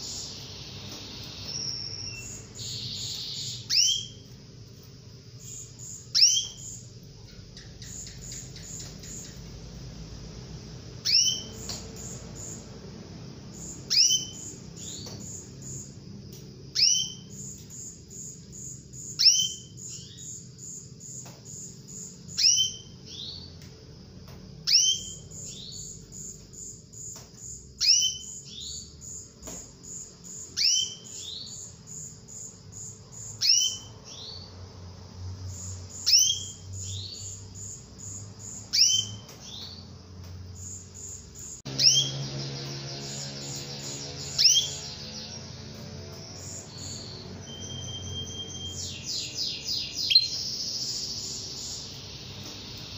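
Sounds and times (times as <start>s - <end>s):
soft high peeps: 0.0s - 9.9s, 40.6s - 52.9s
canary calling: 0.0s - 16.0s, 16.7s - 23.7s, 24.6s - 27.2s, 27.8s - 34.6s, 35.5s - 40.0s, 40.6s - 52.9s.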